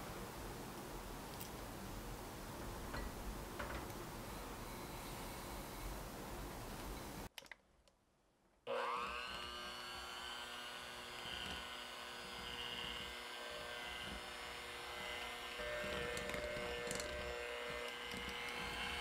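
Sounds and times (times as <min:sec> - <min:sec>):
electric hand mixer whine: 0:08.7 - 0:19.0.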